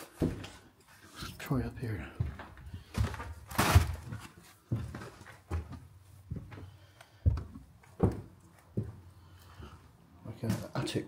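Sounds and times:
footsteps climbing stairs: 0.0s - 0.7s, 2.0s - 9.8s.

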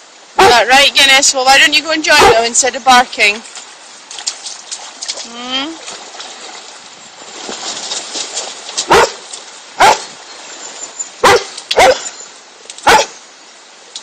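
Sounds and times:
dog barking: 0.4s - 0.6s, 2.2s - 2.4s, 8.9s - 9.2s, 9.8s - 10.1s, 11.2s - 12.1s, 12.8s - 13.2s.

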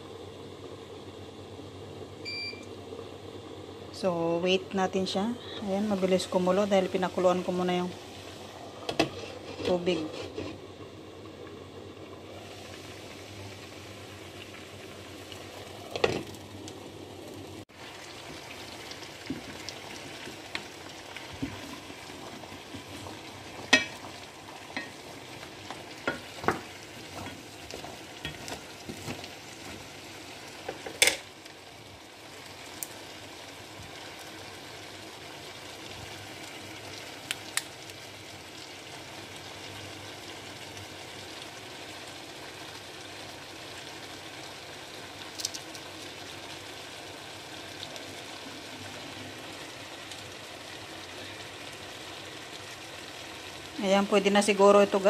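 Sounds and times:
water boiling in a pan: 0.0s - 55.0s
spatula stirring shells against pan: 21.3s - 29.9s.

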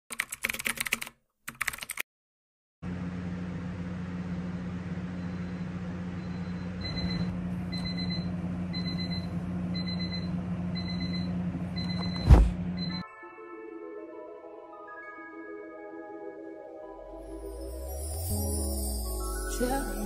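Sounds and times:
alarm clock beeping: 6.2s - 12.2s, 12.8s - 13.1s.

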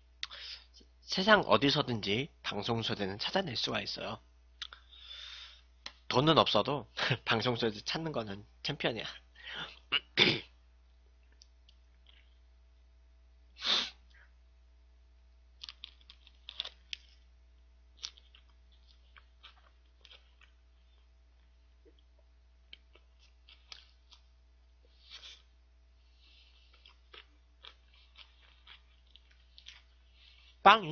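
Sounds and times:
loud breath noise: 4.8s - 5.7s
person chewing sandwich: 11.1s - 12.6s, 15.6s - 30.6s.

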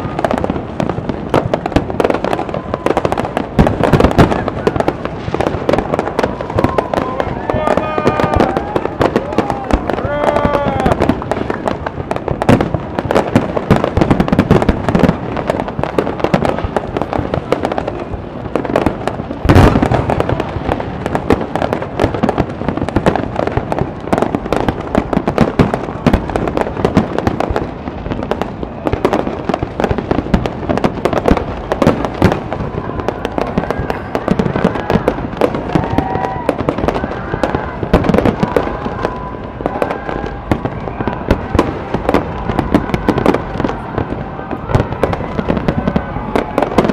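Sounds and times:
fireworks bangs and crackles: 0.0s - 46.9s.

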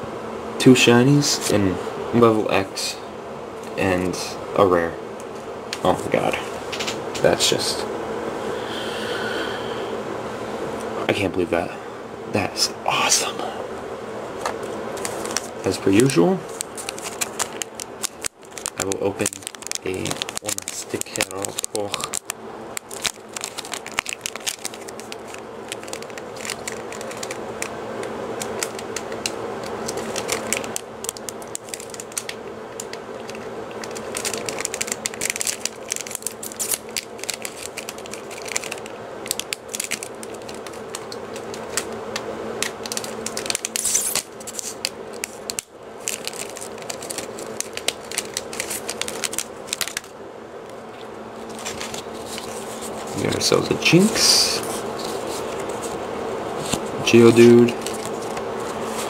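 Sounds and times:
steady low hum: 0.0s - 59.0s
stickers shuffling: 14.4s - 59.0s
foil wrapper crackling: 14.6s - 59.0s.

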